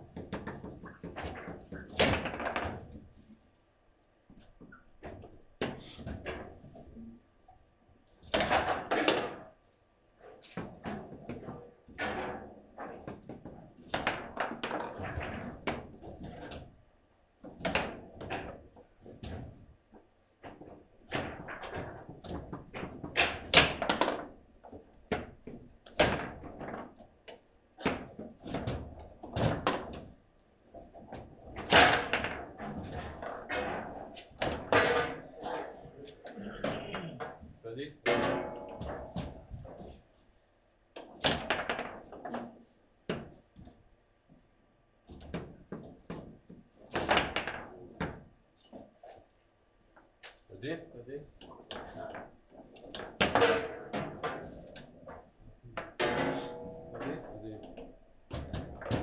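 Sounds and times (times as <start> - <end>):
foosball knocks and thunks: 0.0 - 3.1, 8.3 - 9.5, 10.4 - 16.7, 17.4 - 19.6, 20.4 - 40.0, 41.0 - 43.7, 45.1 - 48.4, 51.3 - 59.0.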